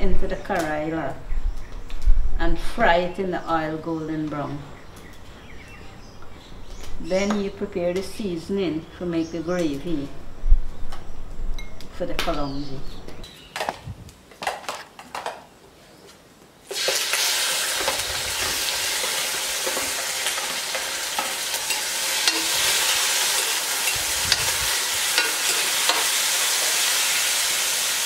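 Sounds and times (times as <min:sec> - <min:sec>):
shrimp sizzling in a pot: 0:16.6 - 0:28.0
metal spoon clicking on pot: 0:21.2 - 0:22.5.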